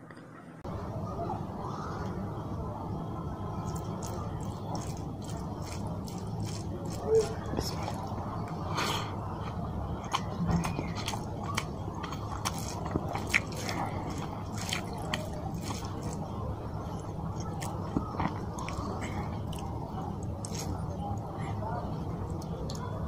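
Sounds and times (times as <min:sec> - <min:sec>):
fingers squishing rice in gravy: 0:03.6 - 0:21.3
chewing: 0:03.6 - 0:23.0.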